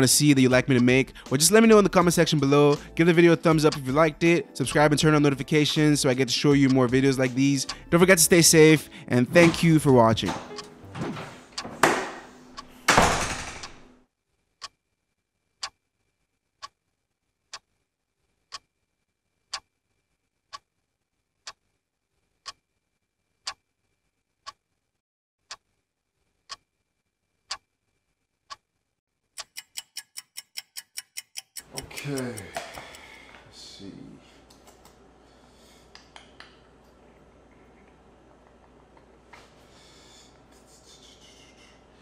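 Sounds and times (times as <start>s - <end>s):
clock ticking: 0.0s - 10.7s, 29.4s - 33.2s
door shutting: 9.4s - 13.9s.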